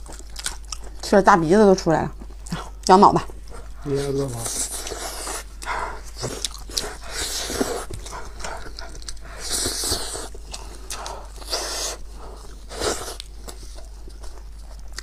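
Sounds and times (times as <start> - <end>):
wet chewing and slurping: 0.0 - 1.1, 2.1 - 15.0
noisy breaths and sniffs: 3.4 - 14.4.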